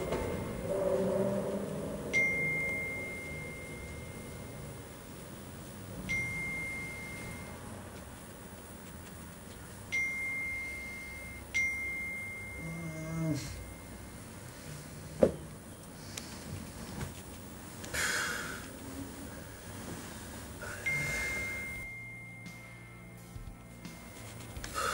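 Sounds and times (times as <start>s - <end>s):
electronic ding: 2.0s - 4.7s, 6.1s - 7.6s.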